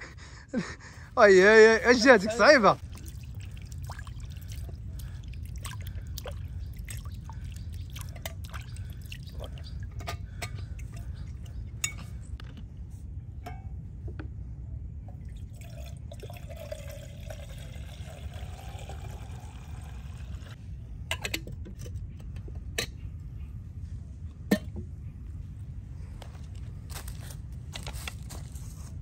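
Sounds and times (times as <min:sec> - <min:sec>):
steady low rumble: 0:00.0 - 0:16.6, 0:19.2 - 0:29.0
liquid pouring into a vessel: 0:02.8 - 0:09.7, 0:15.2 - 0:20.6.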